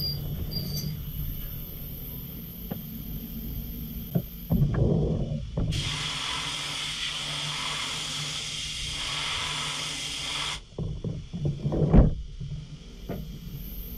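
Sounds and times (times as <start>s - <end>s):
air blast hissing: 5.7s - 10.7s
machine knocking and rattling: 10.8s - 12.5s.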